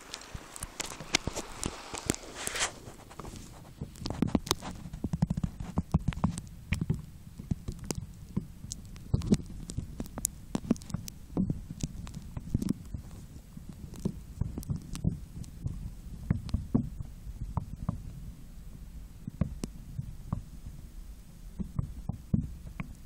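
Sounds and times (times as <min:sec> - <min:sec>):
splash: 0:00.0 - 0:02.9
pouch rubbing and knocking: 0:00.0 - 0:06.3
muffled underwater rumbling: 0:00.0 - 0:23.0.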